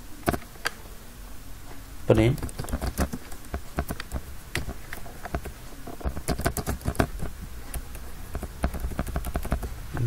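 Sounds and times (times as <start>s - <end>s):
keyboard typing: 2.3s - 10.0s.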